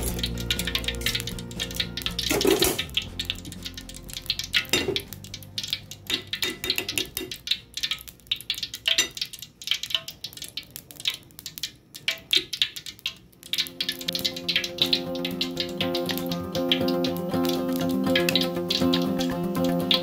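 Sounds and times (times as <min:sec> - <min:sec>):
oil crackling and popping in pan: 0:00.0 - 0:20.0.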